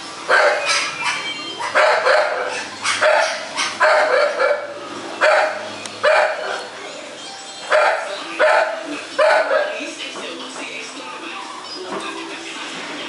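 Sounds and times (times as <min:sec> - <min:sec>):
dogs barking: 0:00.2 - 0:06.9, 0:07.6 - 0:10.0.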